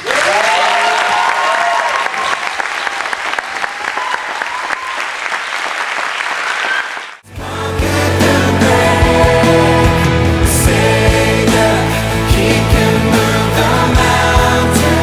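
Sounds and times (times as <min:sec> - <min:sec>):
voices cheering: 0:00.0 - 0:05.2
congregation applauding: 0:00.0 - 0:07.2
christian song with singing: 0:07.3 - 0:15.0.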